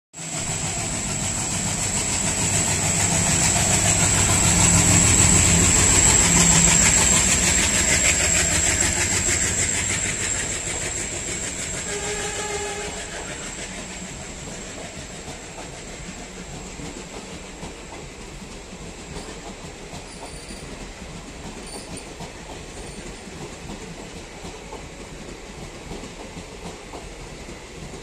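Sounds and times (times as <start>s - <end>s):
diesel locomotive engine chugging: 0.2s - 28.0s
train wheels clattering over rails: 0.2s - 28.0s
horn-like tone: 11.9s - 13.3s.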